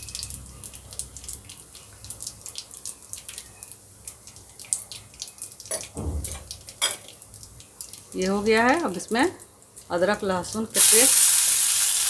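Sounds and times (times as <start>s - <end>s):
spices crackling in hot oil: 0.0s - 12.0s
knock: 6.0s - 6.6s.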